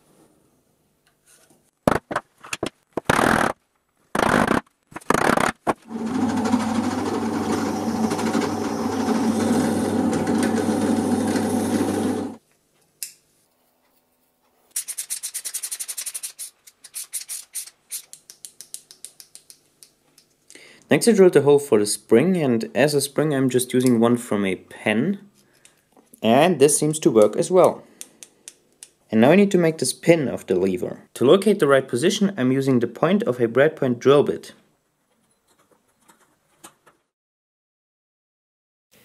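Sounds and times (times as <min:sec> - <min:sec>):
drill boring into plywood: 0:05.2 - 0:12.4.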